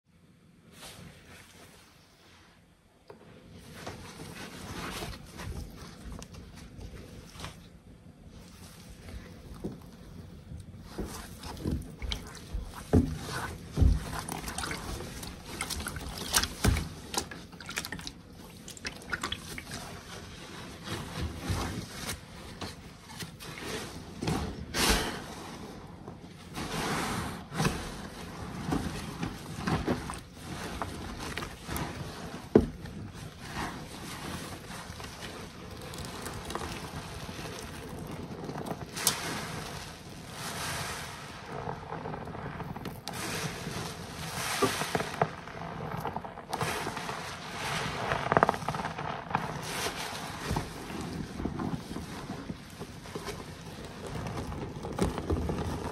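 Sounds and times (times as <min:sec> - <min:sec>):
sponges squishing in soapy water: 0:00.4 - 0:55.9
liquid pouring into tub: 0:10.7 - 0:22.2, 0:28.4 - 0:41.2.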